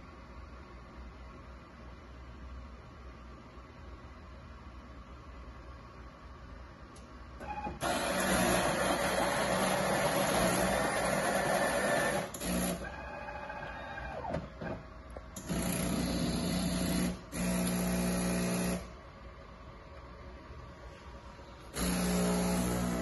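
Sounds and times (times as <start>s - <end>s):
coffee machine whirring: 7.4s - 19.0s, 21.6s - 23.0s.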